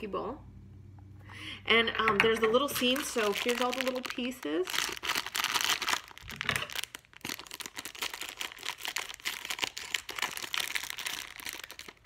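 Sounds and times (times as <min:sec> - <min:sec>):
plastic bag crinkling: 0:02.4 - 0:12.0.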